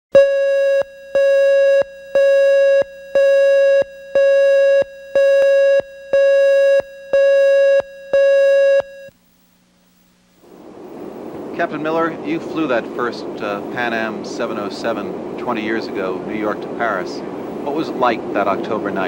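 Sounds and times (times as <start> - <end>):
steady electronic beep: 0.2 - 9.1.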